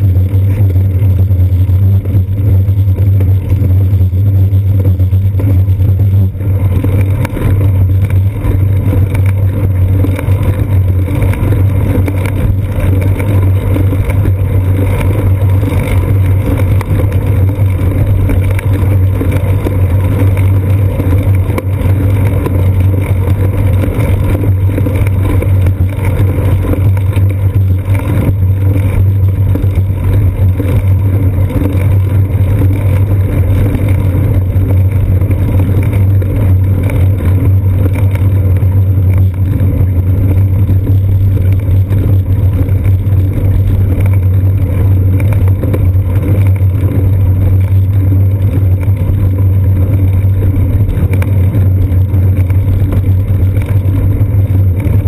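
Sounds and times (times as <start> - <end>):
bicycle road vibration: 0.0 - 55.0
wind rumble: 0.0 - 55.0.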